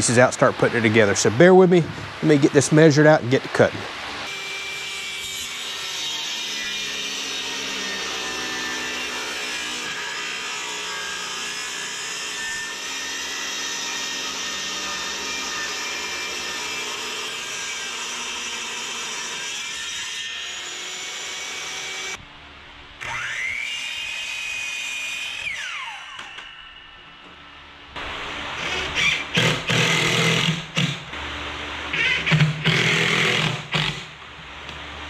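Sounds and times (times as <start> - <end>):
table saw cutting wood: 4.1 - 22.2, 23.0 - 27.3, 28.3 - 31.2, 31.9 - 34.1
power tool motor whine: 23.0 - 31.3, 31.9 - 34.1.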